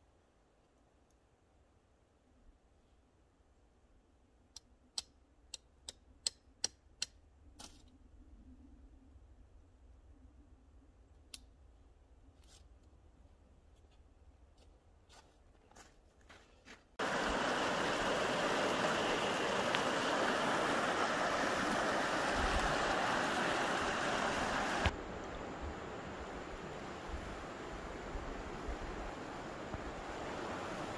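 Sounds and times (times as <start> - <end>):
stream flowing over rocks: 17.0 - 30.9.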